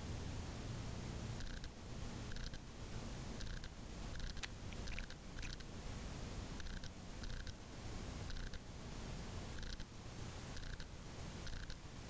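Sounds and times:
cat chattering: 0:03.4 - 0:05.7.

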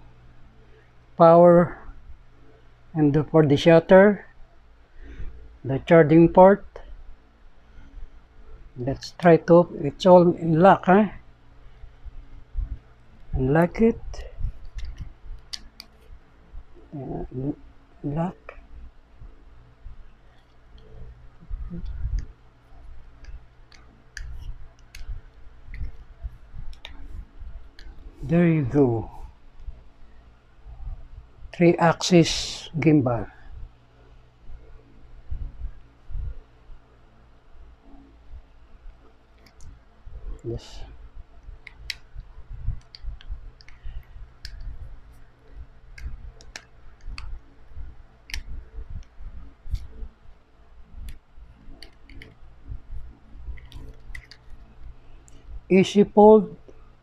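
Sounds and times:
sharp plastic clicks: 0:53.5 - 0:54.6.

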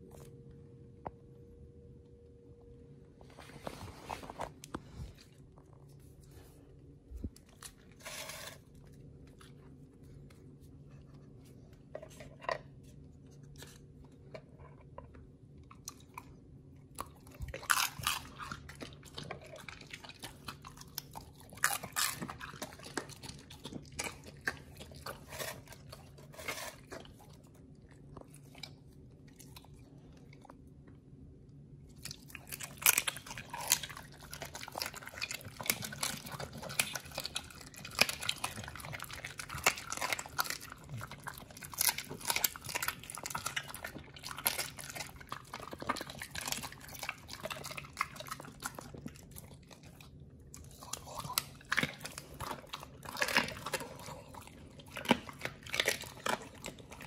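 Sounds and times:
dog chewing raw meat: 0:14.2 - 0:30.6, 0:32.0 - 0:57.0.

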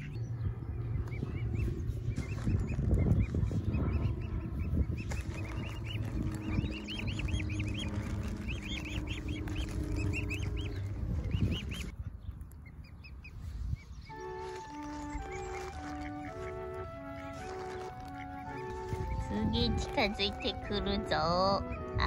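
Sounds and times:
low rumble: 0:00.0 - 0:12.6, 0:13.8 - 0:22.0
cygnets peeping: 0:00.0 - 0:22.0
music: 0:03.6 - 0:11.5, 0:14.1 - 0:22.0.

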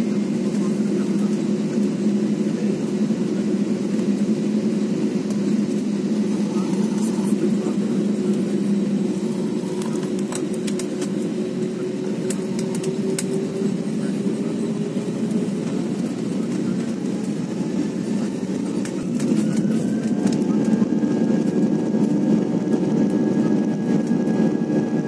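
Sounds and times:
aircraft engines and cabin hum: 0:00.0 - 0:25.0
scattered clicks: 0:09.8 - 0:11.2, 0:12.2 - 0:13.4.

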